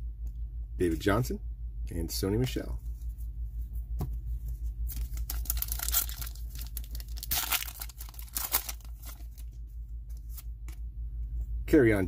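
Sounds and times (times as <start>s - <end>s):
low steady hum: 0.0s - 12.0s
foil pack tearing and crinkling: 4.9s - 9.5s.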